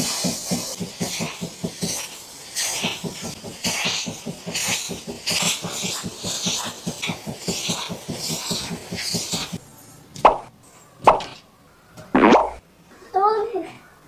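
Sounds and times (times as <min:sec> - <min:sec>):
fabric cleaner hissing: 0:00.0 - 0:09.7.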